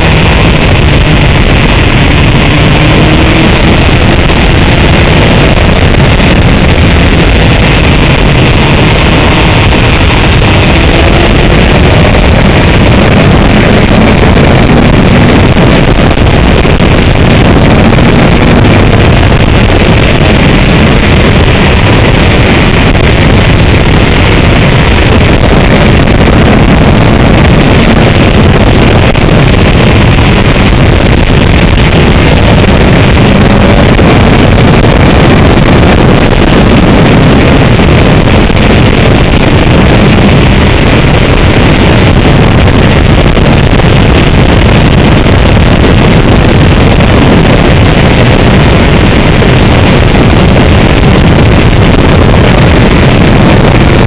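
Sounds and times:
motorcycle engine: 0.0s - 53.2s
wind noise on microphone: 0.0s - 54.0s.

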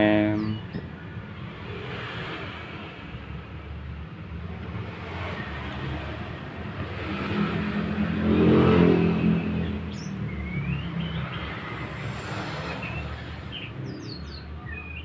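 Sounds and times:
birds chirping: 0.0s - 1.8s, 7.2s - 15.0s
vehicle engine passing by: 4.7s - 14.1s.

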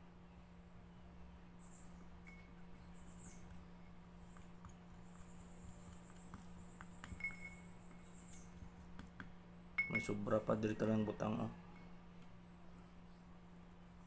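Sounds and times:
stick scraping in glass cup: 5.3s - 8.5s.

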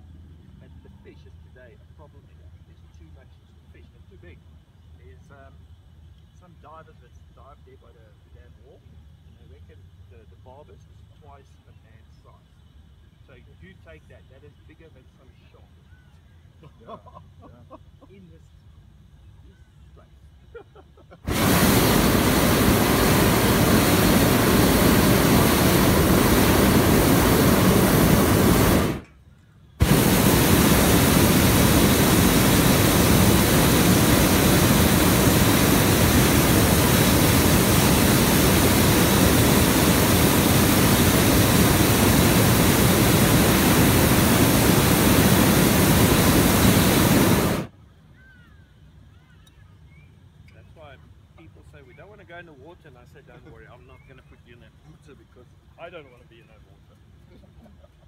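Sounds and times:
propane burner firing: 21.3s - 29.1s, 29.8s - 47.7s.

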